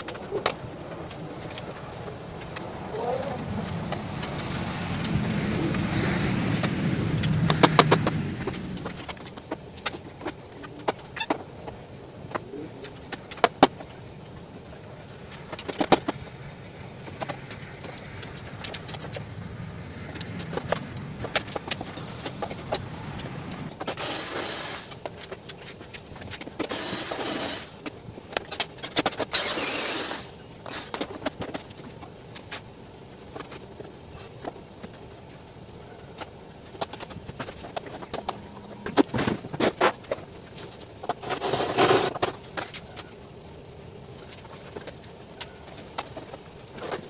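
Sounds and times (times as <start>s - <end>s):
hand tools clicking and clinking: 0.0s - 5.8s, 17.2s - 19.3s, 20.0s - 27.1s, 44.2s - 47.0s.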